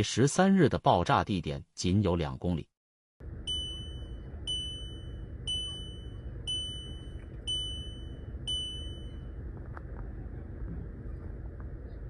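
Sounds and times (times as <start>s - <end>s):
low background rumble: 3.2s - 12.0s
electronic alarm beeping: 3.4s - 9.4s.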